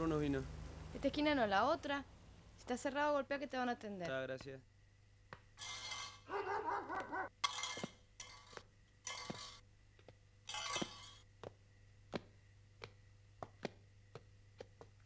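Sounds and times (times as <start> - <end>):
footsteps on pavement: 10.8 - 15.0.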